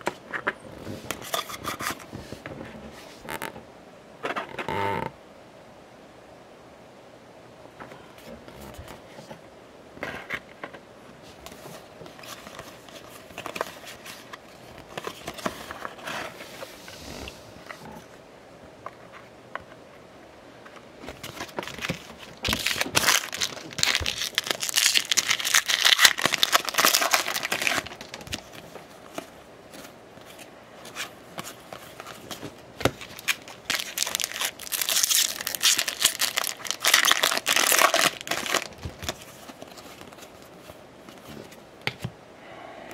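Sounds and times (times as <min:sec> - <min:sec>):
foil wrapper crinkling and tearing: 0:21.1 - 0:29.3, 0:31.9 - 0:40.4.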